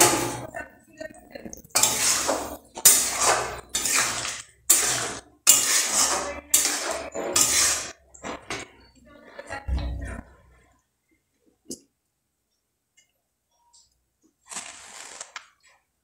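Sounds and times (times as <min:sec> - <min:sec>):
metal spatula scraping a pan: 0:00.0 - 0:00.6, 0:01.6 - 0:09.7.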